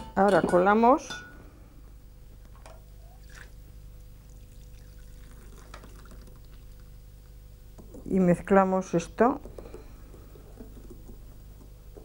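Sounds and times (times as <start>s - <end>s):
milk pouring and trickling: 3.0s - 6.9s.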